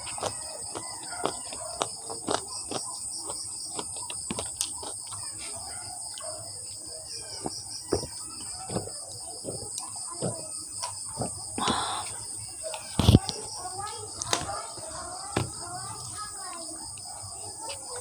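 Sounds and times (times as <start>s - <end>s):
chewing with wet clicks: 0.0s - 5.4s, 9.7s - 9.9s.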